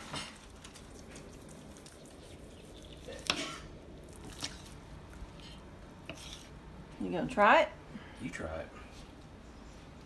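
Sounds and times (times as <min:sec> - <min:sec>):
knife slicing meat on cutting board: 0:06.0 - 0:06.5.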